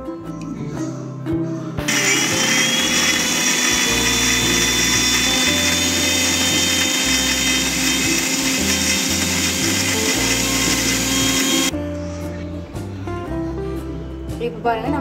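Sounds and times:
electric mixer grinder whining: 0:01.9 - 0:11.7.

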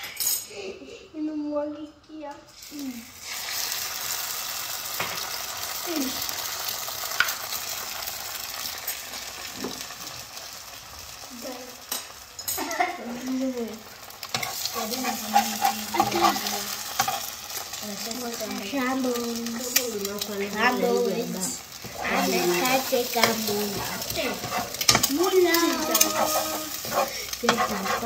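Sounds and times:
egg sizzling in a pan: 0:02.6 - 0:28.0
spatula scraping and knocking pan: 0:14.2 - 0:17.7, 0:21.8 - 0:28.0.

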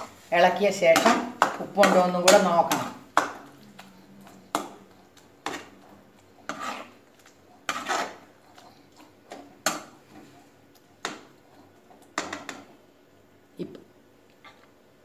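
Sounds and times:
metal spatula scraping a pan: 0:00.0 - 0:03.4, 0:05.4 - 0:07.0, 0:07.6 - 0:08.7.

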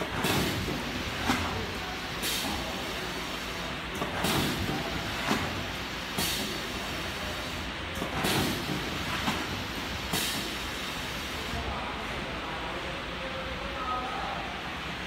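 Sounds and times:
packing machine humming: 0:00.0 - 0:11.5
sealing jaws hiss and clack: 0:06.1 - 0:06.6, 0:10.1 - 0:10.6.

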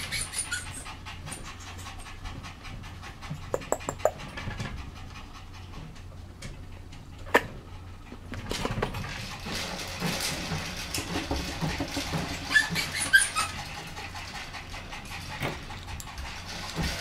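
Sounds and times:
puppy high squeaks: 0:00.0 - 0:01.0, 0:12.4 - 0:13.6
puppy panting: 0:00.0 - 0:10.0, 0:11.4 - 0:17.0.

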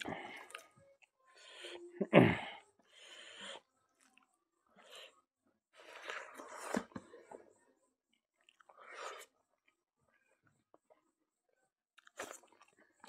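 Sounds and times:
wet chewing: 0:12.0 - 0:13.0.

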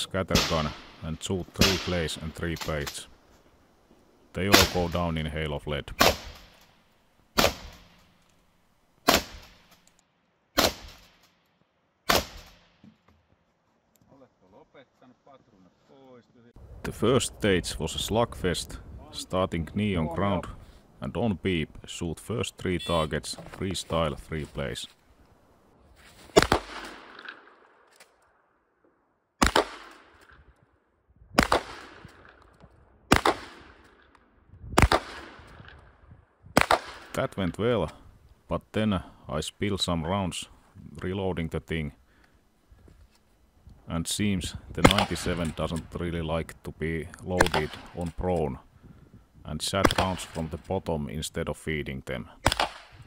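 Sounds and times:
shotgun shots echoing: 0:00.3 - 0:03.0, 0:04.4 - 0:05.1, 0:06.0 - 0:08.2, 0:09.0 - 0:09.8, 0:10.6 - 0:11.3, 0:12.1 - 0:12.8, 0:26.3 - 0:27.9, 0:29.4 - 0:30.4, 0:31.4 - 0:32.5, 0:33.1 - 0:34.1, 0:34.8 - 0:35.9, 0:36.6 - 0:37.2, 0:44.8 - 0:45.8, 0:47.4 - 0:48.2, 0:49.8 - 0:50.6, 0:52.4 - 0:53.0.

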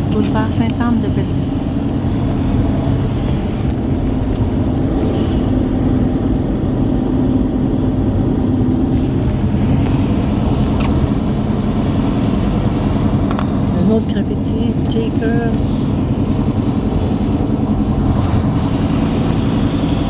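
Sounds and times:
low engine hum: 0:00.0 - 0:20.0
tyres on wet slushy road: 0:08.6 - 0:20.0.

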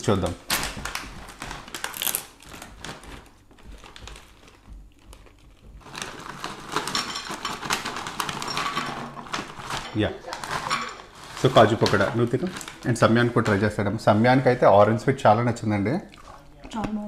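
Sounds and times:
snack packet crinkling: 0:00.0 - 0:14.6
snacks crackling onto plate: 0:00.4 - 0:13.8.

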